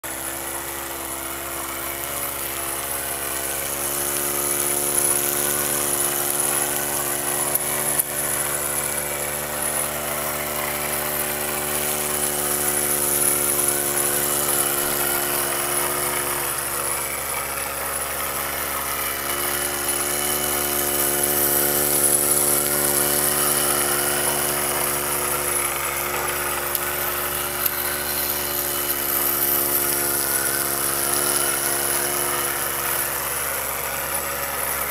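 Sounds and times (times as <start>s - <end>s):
model steam engine humming: 0.0s - 34.9s.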